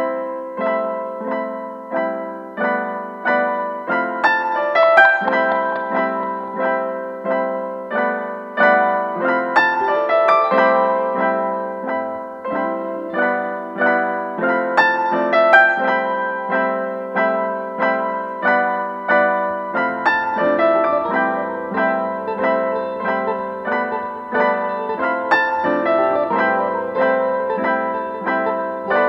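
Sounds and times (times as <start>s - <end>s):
calm piano melody: 0.0s - 29.0s.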